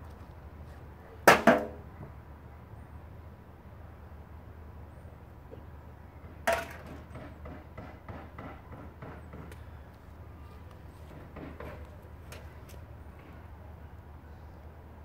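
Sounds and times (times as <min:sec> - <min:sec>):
sharp knocks: 0:06.5 - 0:09.5.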